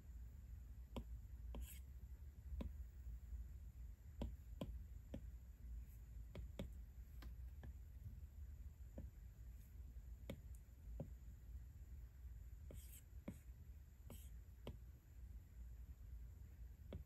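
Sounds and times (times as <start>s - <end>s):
steady low hum: 0.0s - 17.0s
stylus tapping glass screen: 4.1s - 5.4s, 6.2s - 7.8s, 10.2s - 11.2s.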